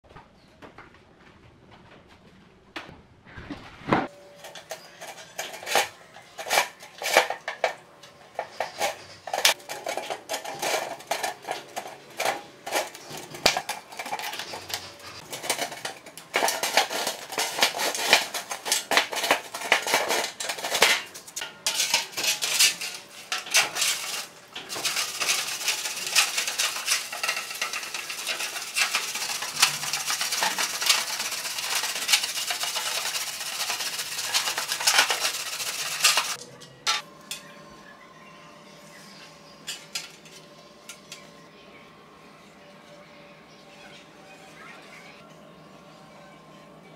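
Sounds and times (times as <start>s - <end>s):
metallic clinks and scrapes: 4.4s - 37.4s.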